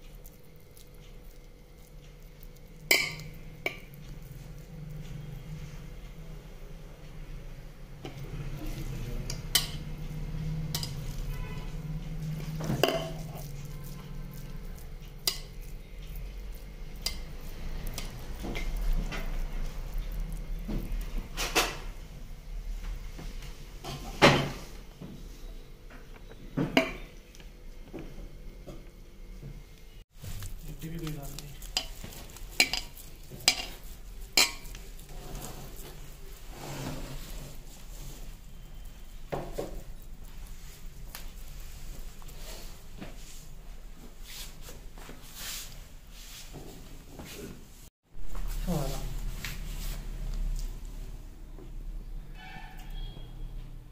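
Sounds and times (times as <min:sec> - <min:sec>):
utensil stirring and scraping: 0:00.0 - 0:05.9, 0:08.0 - 0:22.0, 0:30.1 - 0:43.6
metal utensil clinking on cookware: 0:02.8 - 0:03.9, 0:10.7 - 0:11.5, 0:12.7 - 0:13.5, 0:31.6 - 0:34.8.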